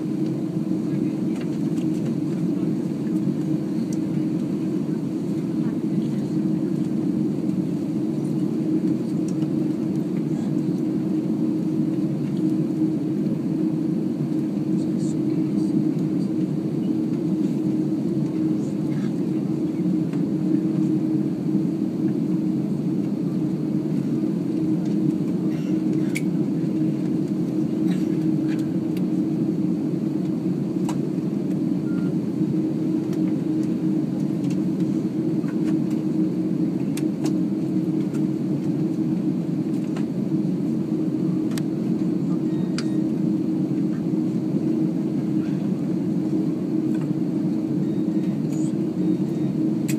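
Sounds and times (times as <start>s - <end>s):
jet engines rumbling in cabin: 0.0s - 49.9s
steady hum: 0.0s - 49.9s.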